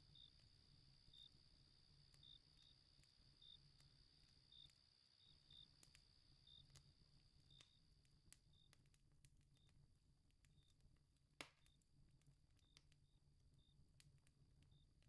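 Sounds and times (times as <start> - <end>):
crickets chirping: 0.0 - 7.8
campfire crackling: 0.0 - 15.0.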